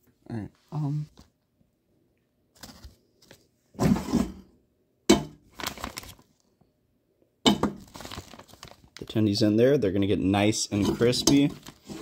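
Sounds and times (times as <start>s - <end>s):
plastic bag rustling: 5.4s - 6.4s, 7.7s - 9.2s, 10.8s - 12.0s.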